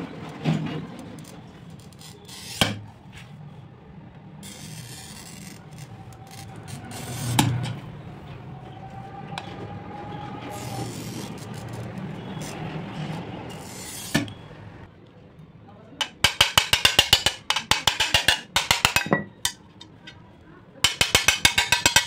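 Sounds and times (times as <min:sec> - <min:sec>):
glass cutter scoring glass: 0:01.2 - 0:02.8, 0:04.4 - 0:07.6, 0:10.5 - 0:14.4, 0:16.0 - 0:19.6, 0:20.8 - 0:22.0.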